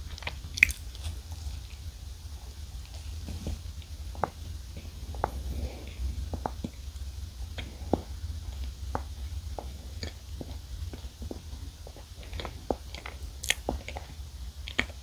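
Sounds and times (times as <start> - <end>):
close-miked chewing: 0.0 - 1.9, 9.6 - 15.0
steady low hum: 0.0 - 15.0.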